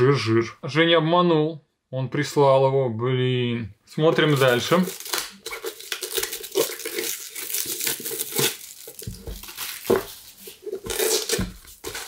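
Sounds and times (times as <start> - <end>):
plastic wrap crinkling: 4.1 - 12.0.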